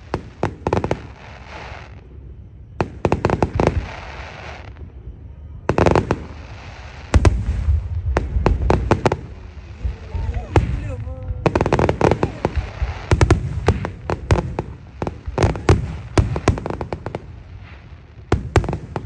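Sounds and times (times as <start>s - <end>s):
fireworks bangs and crackles: 0.0s - 19.0s
deep firework booms: 5.6s - 19.0s.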